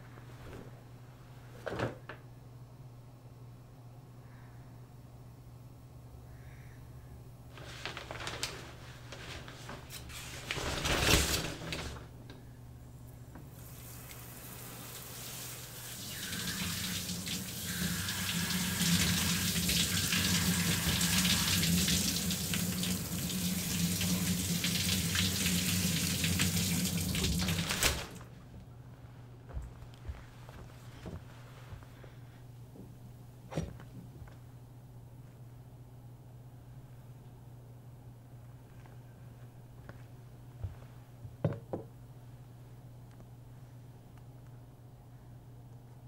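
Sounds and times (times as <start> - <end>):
rustling: 7.5 - 12.1, 29.6 - 32.4
shower spray hissing: 13.6 - 27.6.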